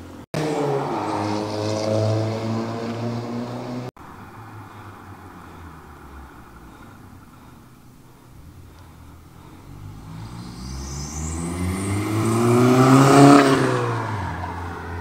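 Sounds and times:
car accelerating past: 0:00.4 - 0:05.8, 0:09.6 - 0:15.0.

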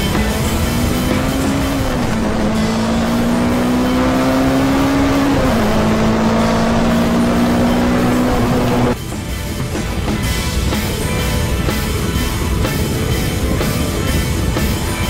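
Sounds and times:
motorcycle engine accelerating: 0:00.0 - 0:09.0.

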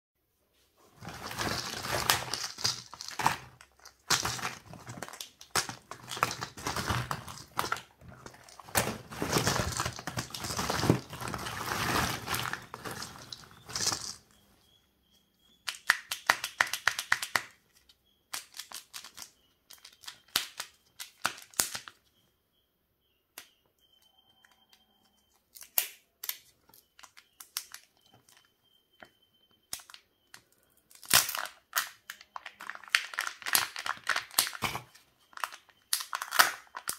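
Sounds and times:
plastic capsules rustling and clattering: 0:00.9 - 0:14.3, 0:18.4 - 0:21.8, 0:31.2 - 0:36.9
wrapper crinkling as peeled: 0:01.0 - 0:14.2, 0:30.9 - 0:36.9
wrapper clicks and crinkles: 0:01.0 - 0:14.3, 0:15.7 - 0:17.6, 0:18.3 - 0:21.9, 0:30.9 - 0:36.9.

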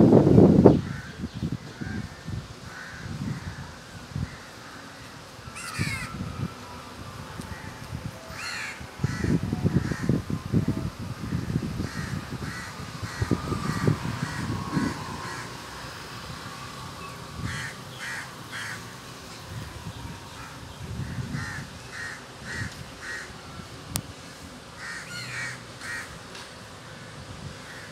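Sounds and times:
crows cawing: 0:01.8 - 0:04.5, 0:05.5 - 0:06.2, 0:08.3 - 0:10.2, 0:11.8 - 0:15.8, 0:17.4 - 0:19.0, 0:20.3 - 0:23.3, 0:24.8 - 0:26.2.

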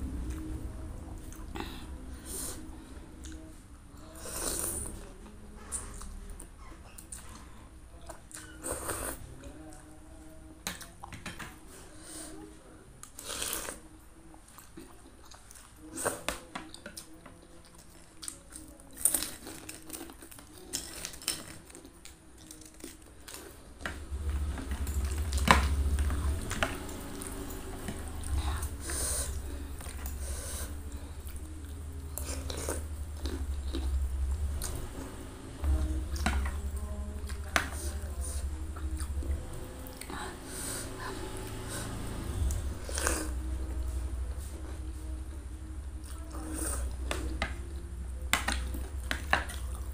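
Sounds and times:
low rumble: 0:00.0 - 0:04.2, 0:23.8 - 0:49.9
chewing: 0:13.0 - 0:49.9.

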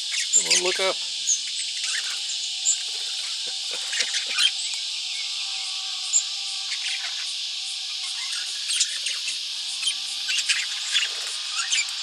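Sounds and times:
budgerigars chirping: 0:00.0 - 0:05.3, 0:08.0 - 0:12.0
steady high-pitched hiss: 0:00.0 - 0:12.0.

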